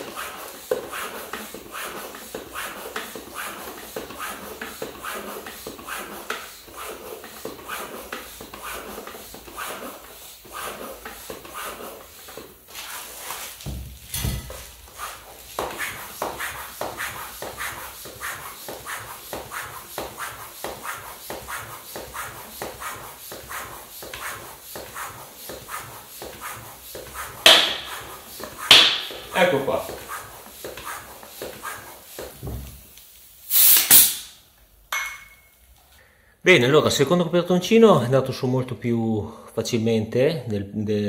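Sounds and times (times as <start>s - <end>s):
floor pump hissing strokes: 0.0s - 34.4s
dull thump: 13.6s - 14.6s, 32.4s - 32.8s.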